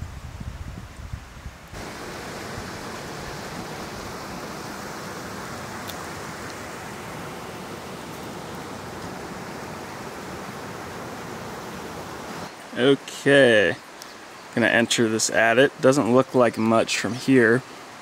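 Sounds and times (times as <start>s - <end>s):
steady rushing hiss: 1.7s - 18.0s.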